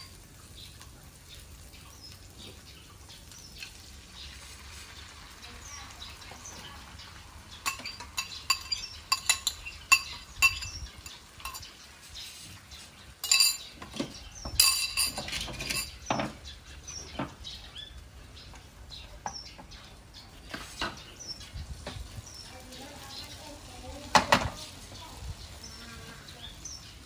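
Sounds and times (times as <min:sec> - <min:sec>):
ceramic bowls clattering: 0:07.5 - 0:11.8, 0:13.2 - 0:16.4.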